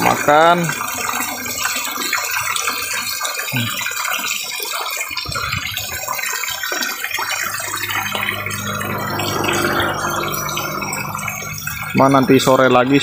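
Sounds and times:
low steady hum: 7.2 - 12.0.

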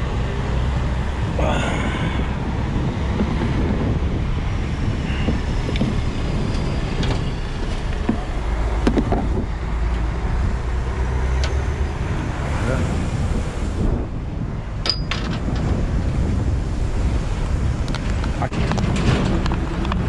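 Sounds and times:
low rumble: 0.0 - 20.0
wind on microphone: 0.0 - 20.0
wrench clinking on metal fitting: 14.8 - 15.2.

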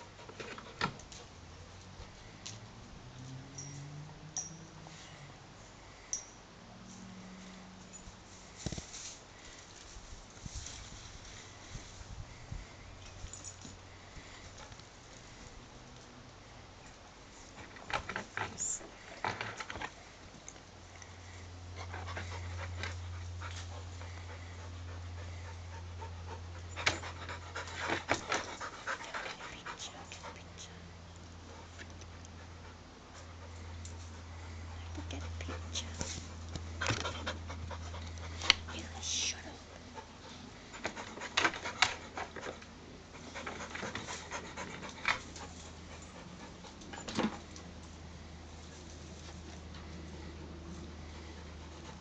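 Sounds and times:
steady low hum: 0.0 - 52.0
dog panting: 21.1 - 47.8, 49.2 - 52.0.

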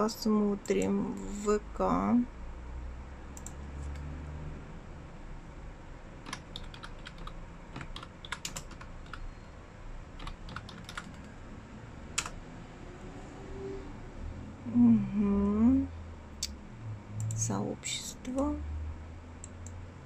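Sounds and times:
keyboard typing: 3.3 - 4.0, 6.2 - 9.3, 10.2 - 11.4, 12.1 - 12.4.

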